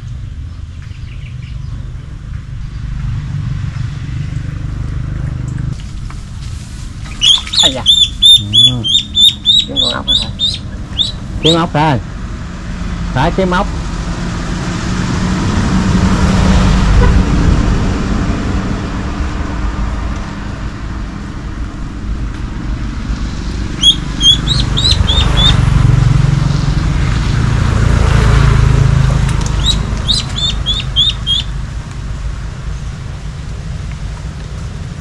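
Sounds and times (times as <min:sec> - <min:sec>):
steady low rumble: 0:00.0 - 0:13.5, 0:16.8 - 0:35.0
small bird chirping: 0:07.1 - 0:11.7, 0:23.7 - 0:25.7, 0:29.2 - 0:31.6.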